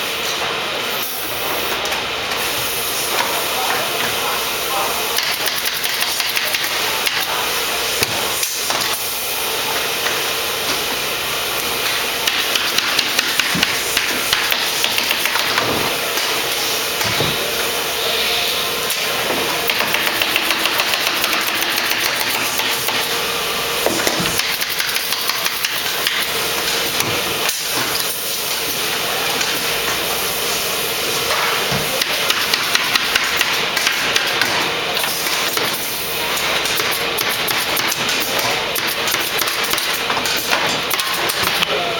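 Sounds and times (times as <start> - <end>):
steady shop noise hiss: 0.0 - 41.9
pneumatic staple gun firing: 19.7 - 23.0.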